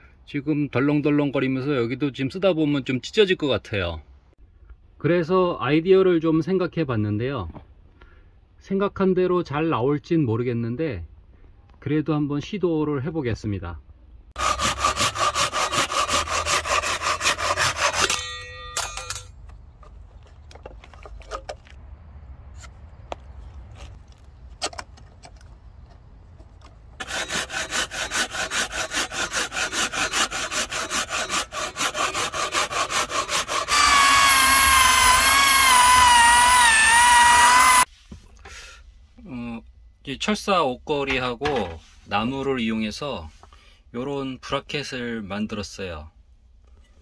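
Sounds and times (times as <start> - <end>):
hand saw cutting plywood: 14.4 - 18.3, 27.0 - 37.9
electric drill whine: 33.7 - 37.9.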